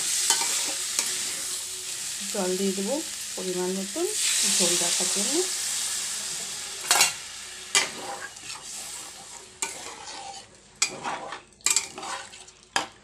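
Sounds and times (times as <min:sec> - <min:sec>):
faint sizzle of simmering gravy: 0:00.0 - 0:13.0
metal spatula scraping pan: 0:06.9 - 0:12.4.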